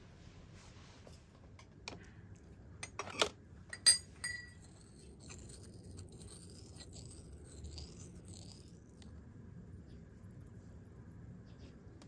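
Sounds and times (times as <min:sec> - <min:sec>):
brass mortar clinks: 0:03.7 - 0:09.1
pestle grinding: 0:04.2 - 0:09.1.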